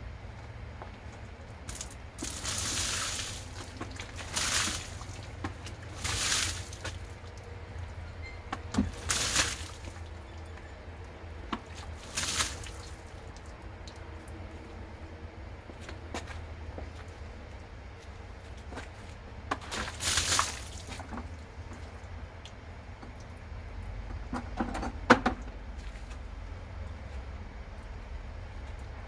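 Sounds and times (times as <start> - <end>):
water splashing against car door: 1.7 - 7.2, 8.7 - 10.0, 11.6 - 13.1.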